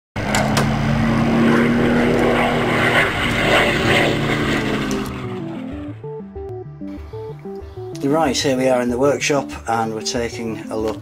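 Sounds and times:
propeller aircraft engine drone: 0.2 - 8.1.

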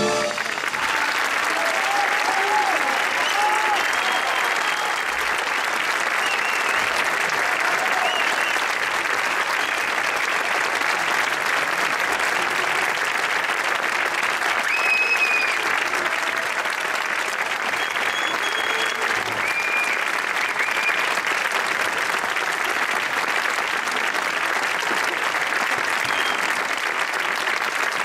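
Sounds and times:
crowd calling out: 0.0 - 5.0
audience applauding: 0.0 - 28.0.

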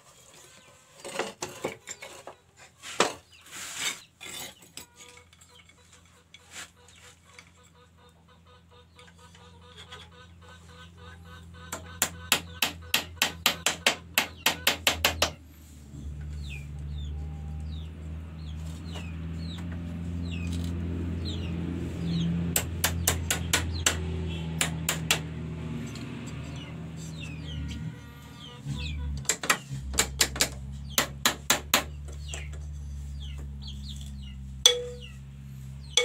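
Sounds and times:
bird chirps: 32.2 - 35.2.

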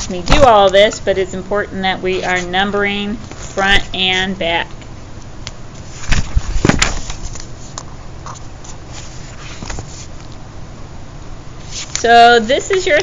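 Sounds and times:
notebook pages rustling: 5.8 - 10.3, 11.6 - 12.1.

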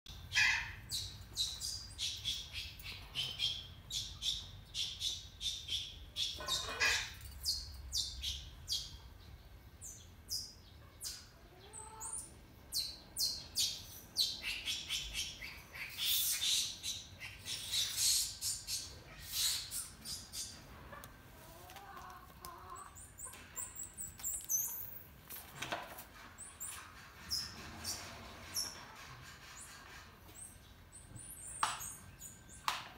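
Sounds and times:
small birds chirping: 0.1 - 25.3
low background hum: 0.1 - 32.9.

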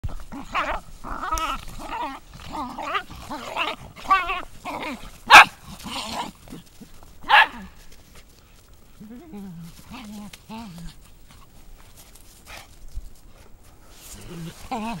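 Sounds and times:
dogs growling and snarling: 0.0 - 7.8, 9.0 - 12.8, 13.9 - 15.0
dog barking: 5.3 - 5.6, 7.2 - 7.7.

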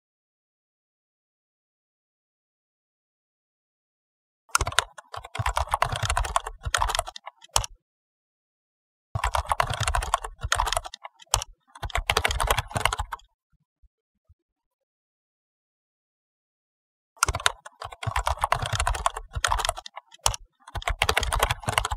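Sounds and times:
keyboard typing clicks: 4.5 - 7.8, 9.2 - 13.2, 17.2 - 21.9.

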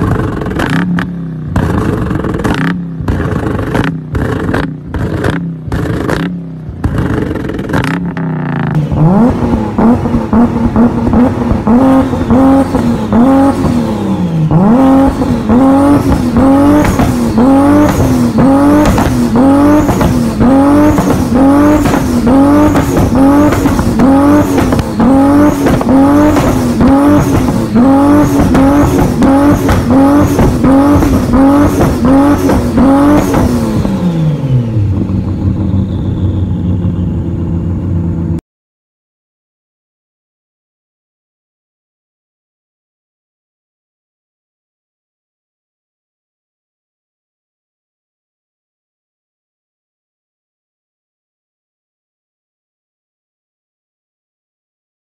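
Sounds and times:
exhaust pops and crackles: 0.0 - 8.8, 16.0 - 33.9
car engine revving: 0.0 - 38.4.

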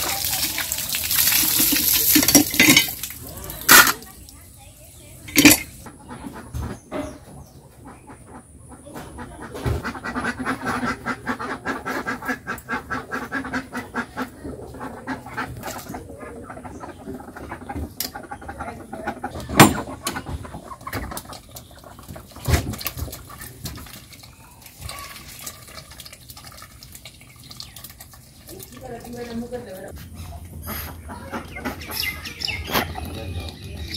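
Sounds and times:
ducks quacking: 5.8 - 25.2, 28.6 - 33.9.

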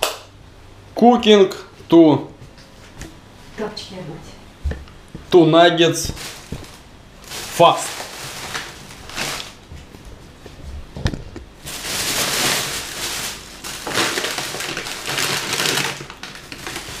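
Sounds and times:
plastic bag rustling: 6.0 - 10.8, 11.5 - 17.0.

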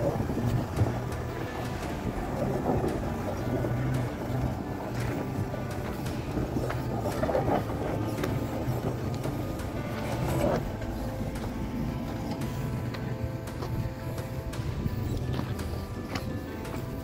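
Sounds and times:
truck engine running hard: 0.0 - 17.0
tyres crunching on loose ground: 0.0 - 17.0.

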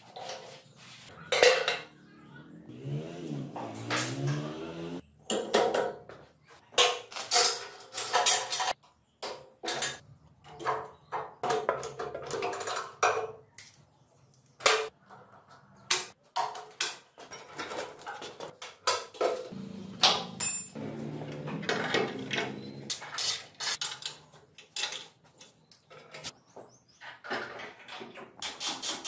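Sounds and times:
wrenches clinking on metal: 6.8 - 8.8.

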